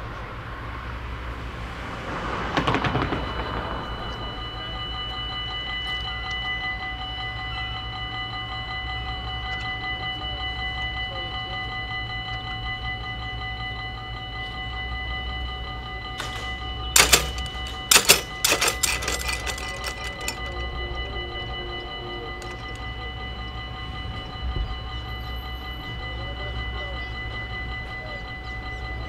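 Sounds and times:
low rumble: 0:01.4 - 0:05.8
level crossing bell ringing: 0:05.4 - 0:29.0
loud clattering knocks: 0:16.2 - 0:20.6.

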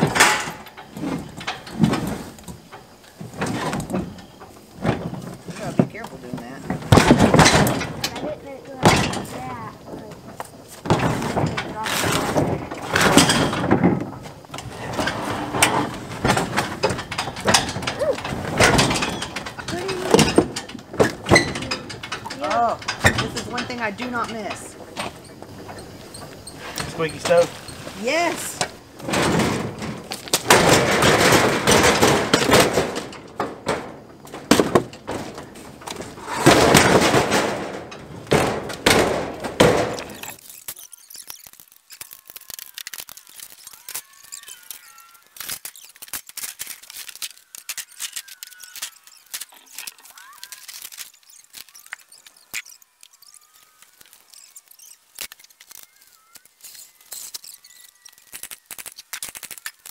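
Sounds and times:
metal scraping on wood: 0:00.0 - 0:42.1.

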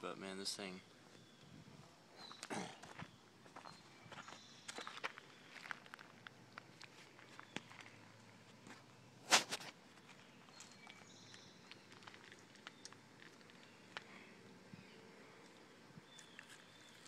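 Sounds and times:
rubbing burst: 0:09.2 - 0:09.7.

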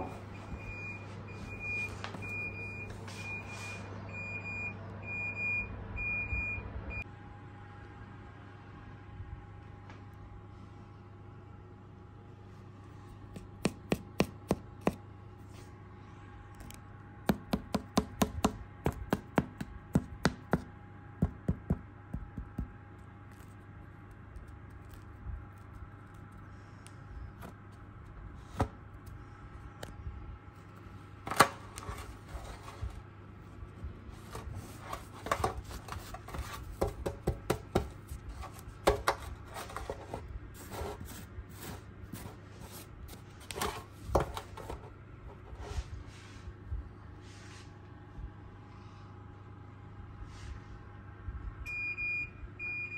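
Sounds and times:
fingers tapping bread crust: 0:13.3 - 0:15.0, 0:17.2 - 0:27.6
crackling and scraping: 0:22.9 - 0:33.1, 0:33.8 - 0:37.2, 0:37.8 - 0:45.9.

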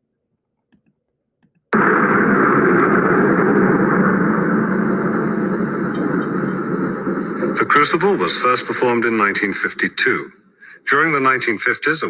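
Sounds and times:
loud steady rushing noise: 0:01.8 - 0:10.1.

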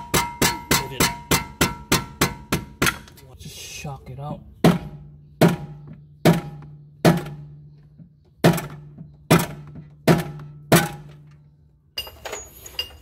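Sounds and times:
hammer striking steel: 0:00.0 - 0:03.2.

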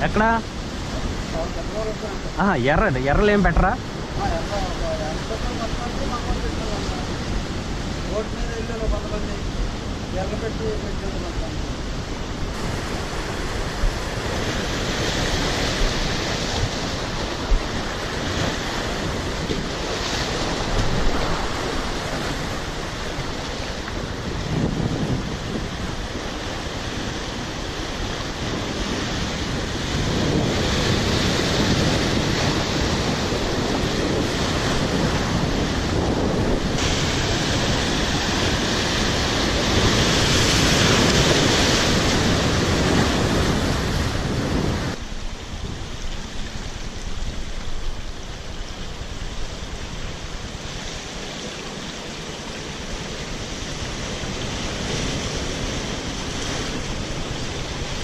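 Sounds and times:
surf breaking over rocks: 0:00.0 - 0:58.0
wind buffeting microphone: 0:00.0 - 0:58.0.

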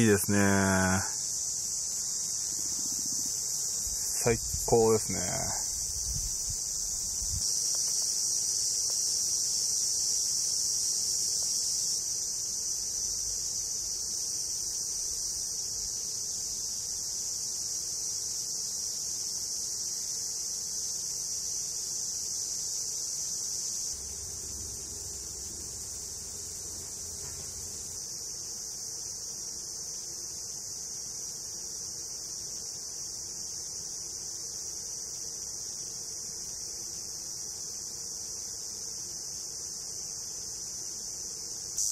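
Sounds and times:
insects chirping: 0:00.0 - 0:41.9
faint low rumble: 0:24.0 - 0:27.9.

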